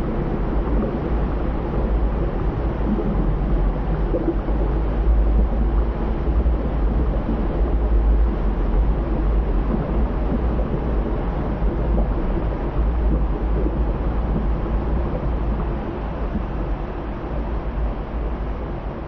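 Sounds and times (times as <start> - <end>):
deep low rumble: 0.0 - 19.0.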